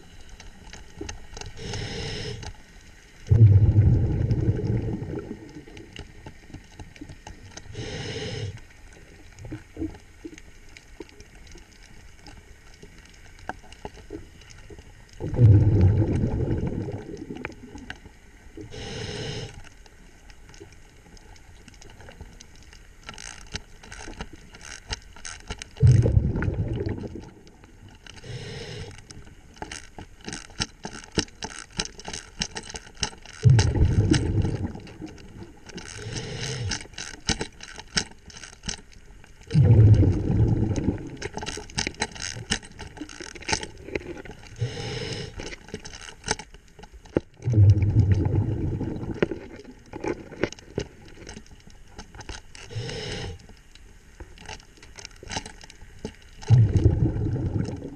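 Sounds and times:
hissing inhalations: 1.6s - 2.6s, 7.7s - 8.7s, 18.6s - 19.6s, 28.2s - 29.0s, 36.0s - 36.9s, 44.6s - 45.6s, 52.7s - 53.5s
bubbling exhalations underwater: 3.3s - 5.9s, 15.2s - 17.8s, 25.8s - 27.4s, 33.4s - 35.1s, 39.5s - 41.2s, 47.4s - 49.7s, 56.5s - 57.9s.

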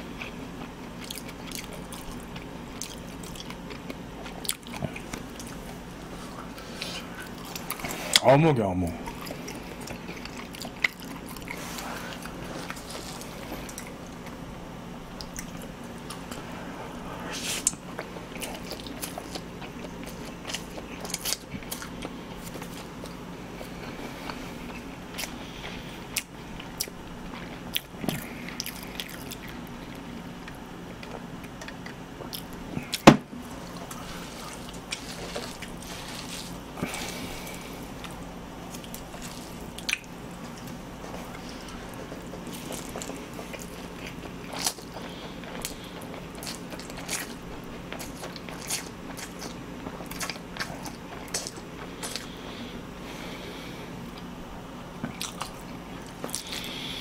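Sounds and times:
steady low hum: 0.0s - 57.0s
chewing and slurping noodles: 9.0s - 14.4s, 17.3s - 54.3s.

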